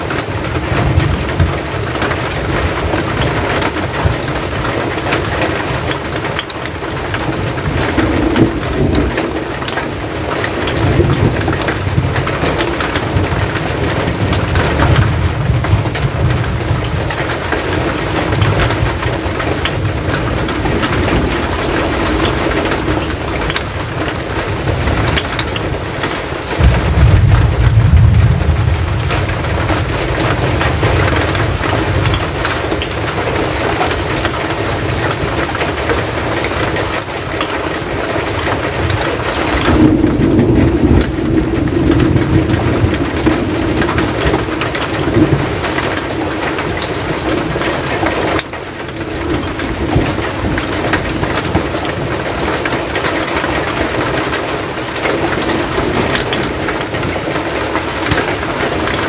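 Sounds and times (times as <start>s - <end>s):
steady rain: 0.0s - 59.0s
low rumble: 26.6s - 32.5s.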